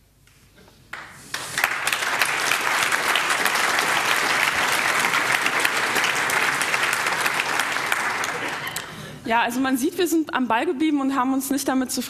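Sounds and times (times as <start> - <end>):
audience applauding: 0.9 - 9.1.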